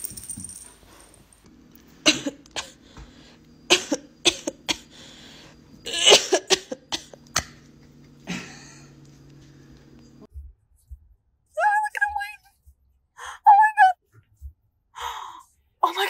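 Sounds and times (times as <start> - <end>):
steady low hum: 0.0 - 11.2.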